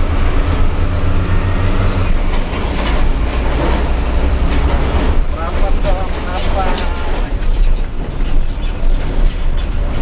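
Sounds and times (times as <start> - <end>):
truck diesel engine droning: 0.0 - 7.6
road noise: 0.0 - 10.0.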